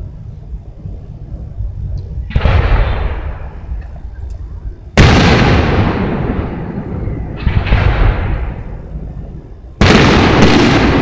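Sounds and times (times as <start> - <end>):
rumble after firework: 0.0 - 11.0
firework shells booming: 2.3 - 3.9, 5.0 - 11.0.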